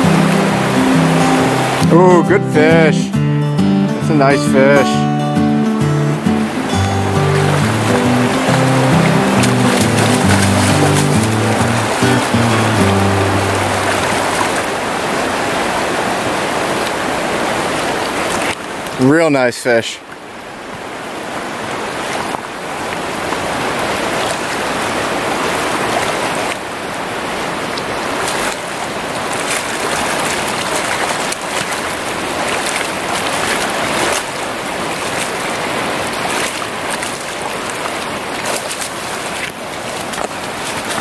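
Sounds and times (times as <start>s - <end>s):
river water rushing over riffle: 0.0s - 41.0s
fish splashing at surface: 7.4s - 14.7s.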